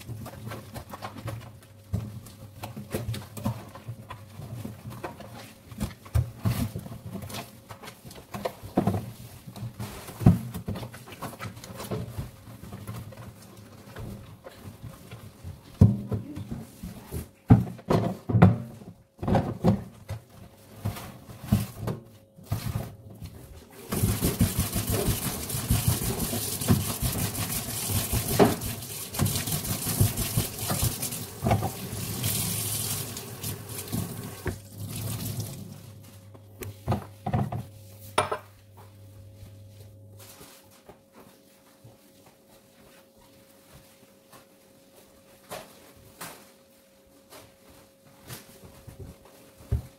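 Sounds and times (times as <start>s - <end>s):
tap running: 23.9s - 35.5s
dishes clinking and knocking: 38.2s - 38.5s.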